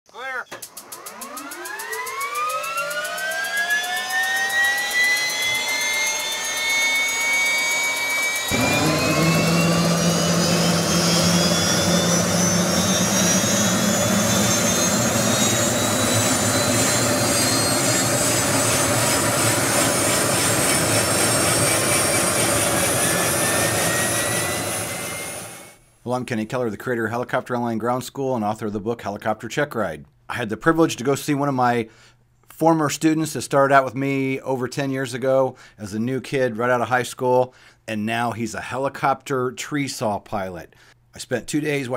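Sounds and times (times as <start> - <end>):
helicopter turbine whine: 0.6 - 25.8.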